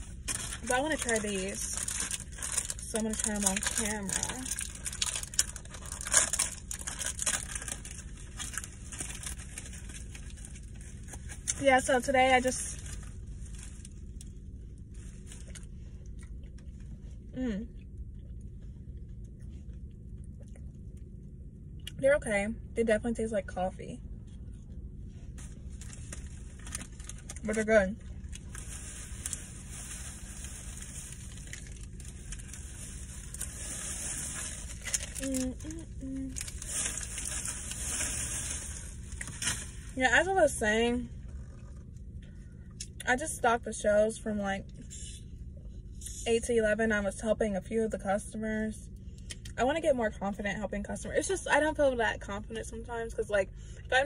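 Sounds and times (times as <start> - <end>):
plastic wrapper crinkling and tearing: 0.0 - 15.8, 25.4 - 40.0
car cabin rumble and hiss: 0.0 - 17.3, 24.6 - 45.2.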